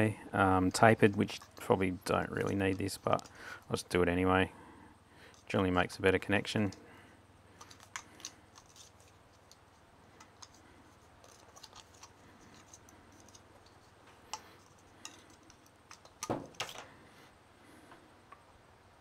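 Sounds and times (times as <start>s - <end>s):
thread tape crinkling: 7.5s - 16.8s.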